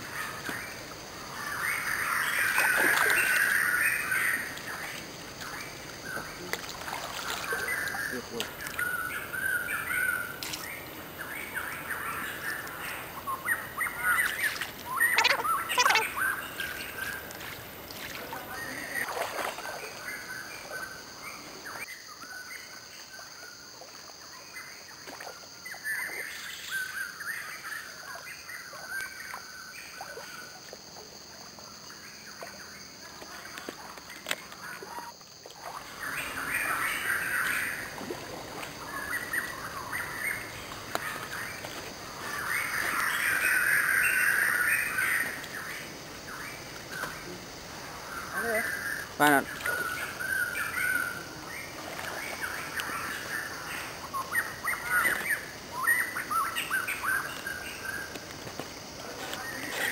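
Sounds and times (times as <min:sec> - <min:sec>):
stream flowing: 0:00.0 - 0:21.8, 0:29.9 - 0:59.9
birds chirping: 0:00.3 - 0:17.3.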